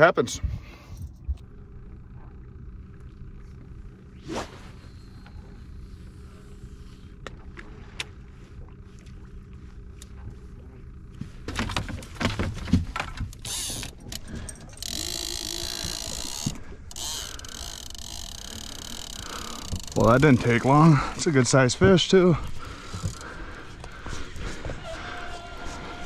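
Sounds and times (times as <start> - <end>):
fishing reel buzzing: 13.4 - 20.4, 22.7 - 23.8
footsteps on boat deck: 19.7 - 26.0.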